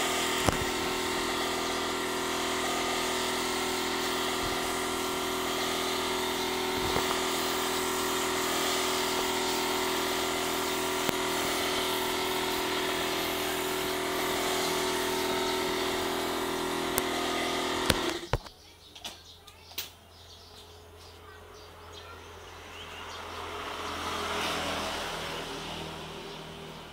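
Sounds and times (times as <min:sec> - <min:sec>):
air compressor humming and hissing: 0:00.0 - 0:18.5.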